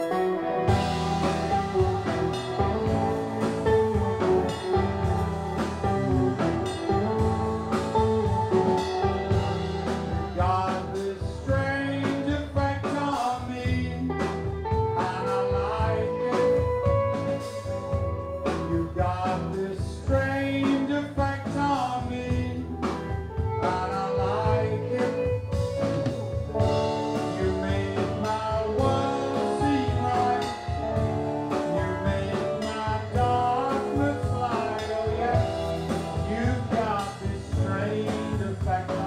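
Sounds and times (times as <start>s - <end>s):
drum kit: 0.0s - 39.0s
electric guitar: 0.0s - 39.0s
man singing into a microphone: 7.7s - 17.6s, 18.4s - 39.0s.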